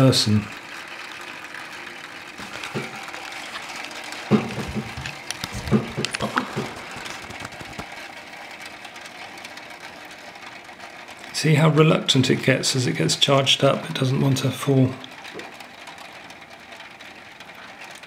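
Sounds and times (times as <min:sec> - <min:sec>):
sharp knocks and clicks: 0:02.4 - 0:07.9.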